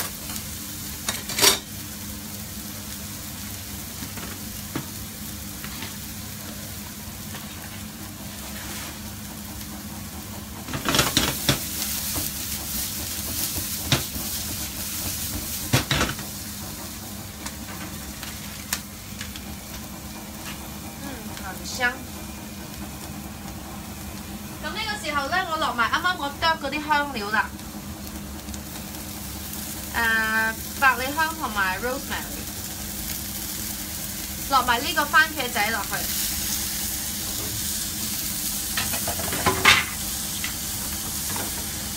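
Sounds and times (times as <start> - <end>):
onions sizzling in oil: 0.0 - 41.9.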